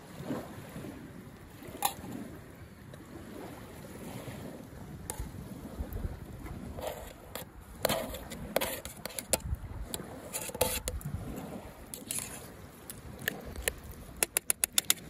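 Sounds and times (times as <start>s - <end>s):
spoon scraping a metal plate: 1.8s - 2.1s, 6.8s - 9.5s, 10.2s - 11.0s, 11.9s - 12.6s.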